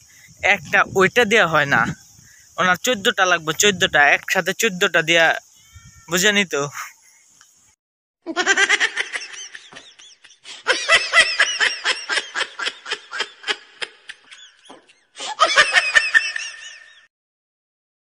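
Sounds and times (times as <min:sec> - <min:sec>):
high-pitched laughter: 0:08.3 - 0:17.1.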